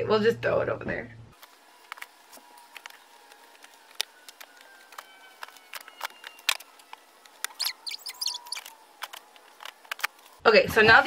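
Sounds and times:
short high squeaks: 7.5 - 8.8.

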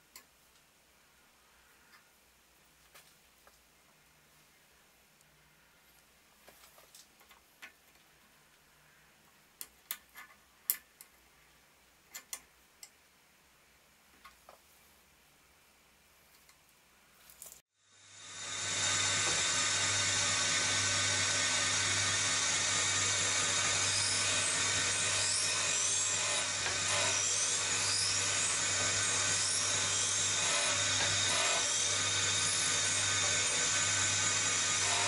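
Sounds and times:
grinding wheel hissing on metal: 18.1 - 35.0
spindle motor hum: 18.1 - 35.0.

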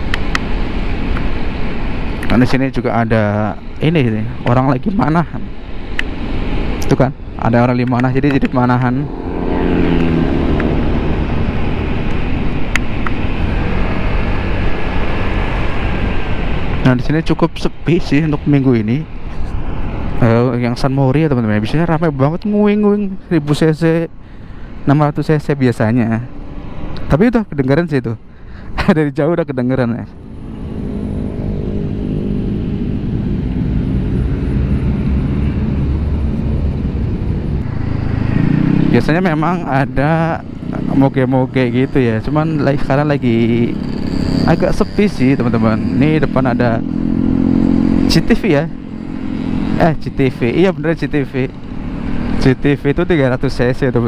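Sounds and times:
city traffic: 0.0 - 54.0
scooter engine humming: 8.4 - 16.5, 30.2 - 50.6.

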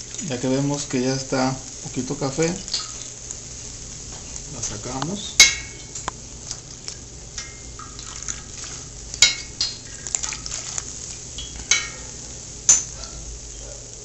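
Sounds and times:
hot oil sizzling: 0.0 - 14.0
metal spoon clinking on pot: 5.4 - 5.8, 9.2 - 9.8, 11.4 - 12.0.

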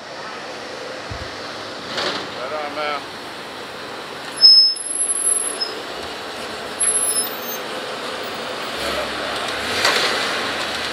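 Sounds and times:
high-pitched squeals: 4.3 - 5.8, 6.8 - 7.7.

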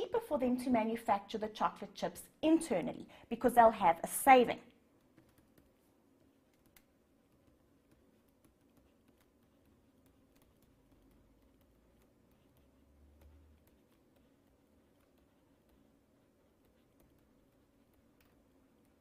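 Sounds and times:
faint low hum: 0.0 - 19.0
stylus tapping on tablet screen: 4.8 - 19.0.

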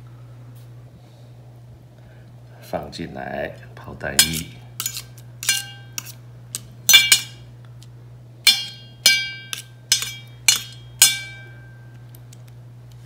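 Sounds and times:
fork clinking against metal bowl: 4.2 - 7.4, 8.5 - 11.6.

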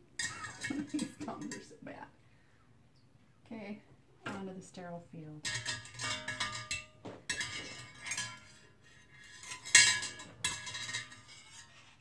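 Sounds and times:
metal tongs clinking on saucepan: 0.2 - 1.8, 5.4 - 11.8.

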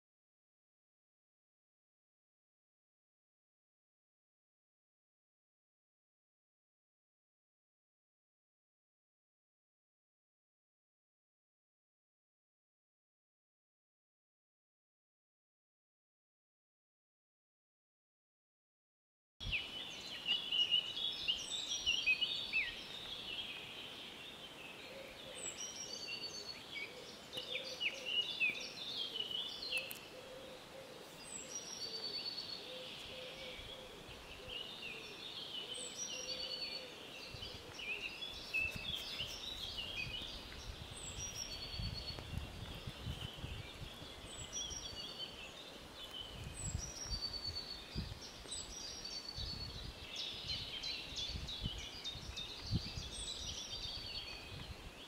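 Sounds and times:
songbirds singing: 19.4 - 55.0.

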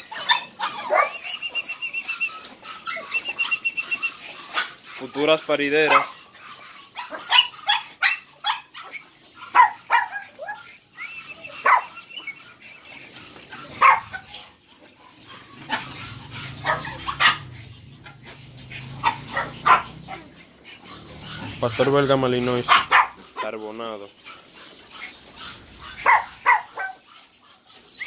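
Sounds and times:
dog whining: 0.0 - 4.8
dogs barking: 0.0 - 28.0.

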